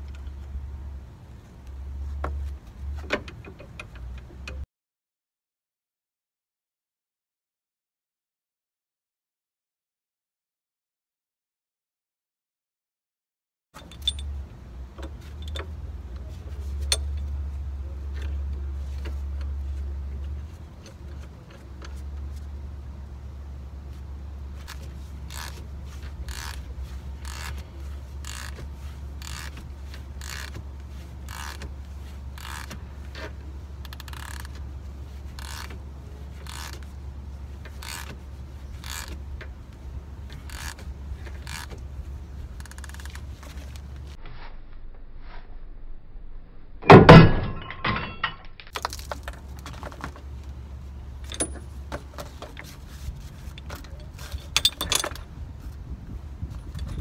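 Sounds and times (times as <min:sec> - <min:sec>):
light metal clanks: 0:13.8 - 0:17.4, 0:51.2 - 0:52.8, 0:53.4 - 0:55.3
ratchet wrench clicking: 0:25.3 - 0:25.6, 0:26.3 - 0:26.6, 0:27.2 - 0:27.6, 0:28.2 - 0:28.6, 0:29.2 - 0:29.5, 0:30.2 - 0:30.5, 0:31.3 - 0:31.6, 0:32.4 - 0:32.7, 0:35.4 - 0:35.7, 0:38.8 - 0:39.2.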